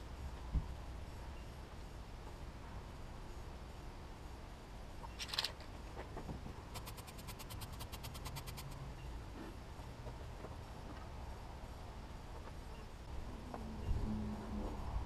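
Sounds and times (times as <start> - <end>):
rapid sharp clicks: 6.7 - 8.8.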